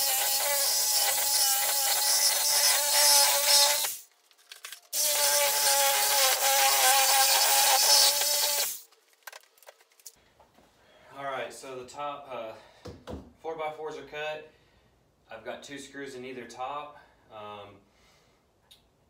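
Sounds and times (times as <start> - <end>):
reciprocating saw cutting wood: 0.0 - 4.1, 4.9 - 8.9.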